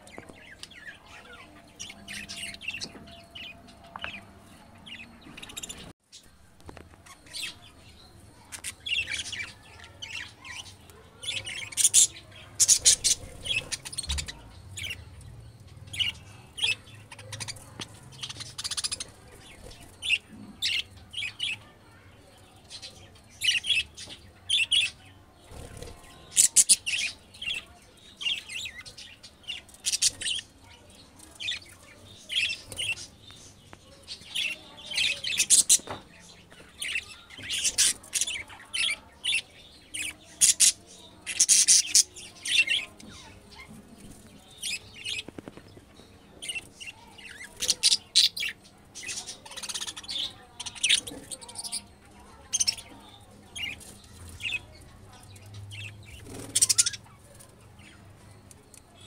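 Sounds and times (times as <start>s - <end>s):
budgerigars chirping: 10.2s - 15.2s, 55.7s - 57.2s.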